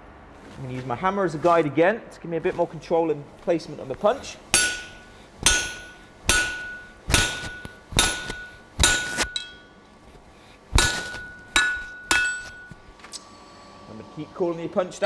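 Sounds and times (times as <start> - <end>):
hammer striking punch on metal: 4.5 - 9.7, 10.7 - 12.8.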